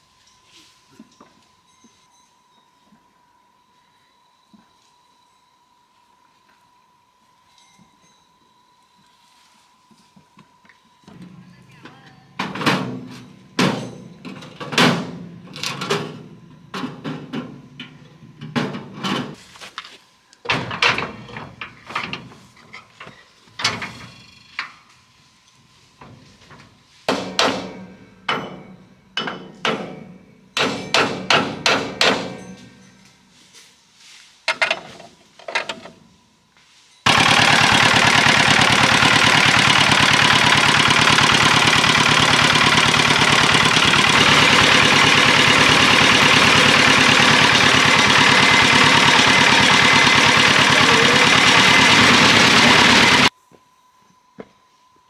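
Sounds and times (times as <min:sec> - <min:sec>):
ringing hammer blows: 0:27.1 - 0:33.2
diesel engine running: 0:37.1 - 0:53.3.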